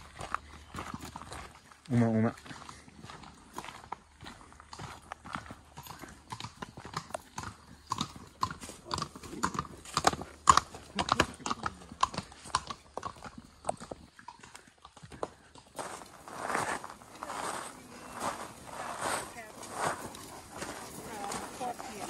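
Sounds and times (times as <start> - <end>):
horse hooves clopping on rocks: 4.6 - 22.0.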